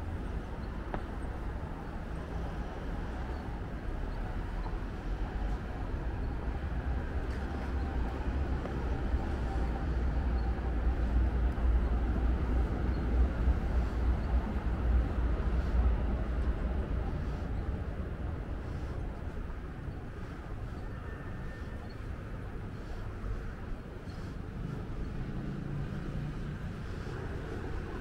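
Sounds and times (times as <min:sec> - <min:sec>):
city ambience: 0:00.0 - 0:28.0
passing vehicle rumble: 0:24.2 - 0:28.0.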